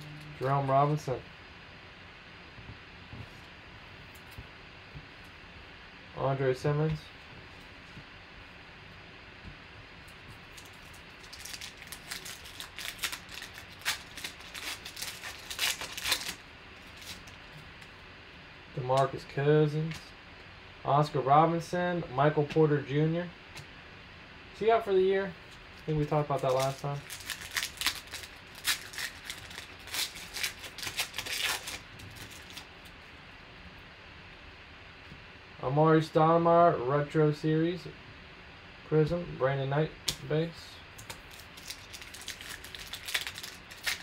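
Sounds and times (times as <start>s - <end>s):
foil wrapper crinkling: 10.3s - 17.4s, 25.5s - 32.9s, 41.0s - 44.0s.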